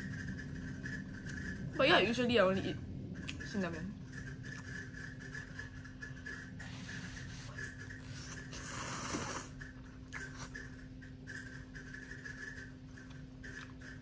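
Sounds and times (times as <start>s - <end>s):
faint steady hum: 0.0s - 14.0s
person slurping noodles: 6.7s - 9.6s.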